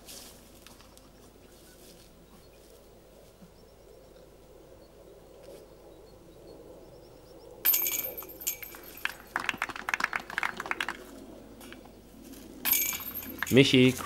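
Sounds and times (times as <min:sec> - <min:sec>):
metallic clinks and rattles: 0:07.6 - 0:09.6, 0:12.6 - 0:14.0
disc golf basket chains jingling: 0:07.6 - 0:11.0, 0:12.6 - 0:14.0.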